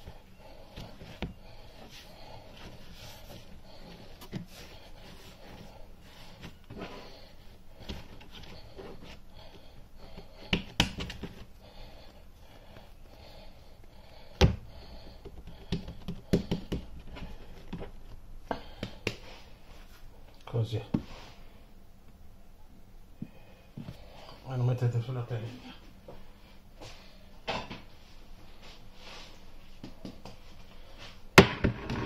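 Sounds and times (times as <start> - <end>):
hands rubbing and patting dough: 0.0 - 14.0, 14.9 - 20.2.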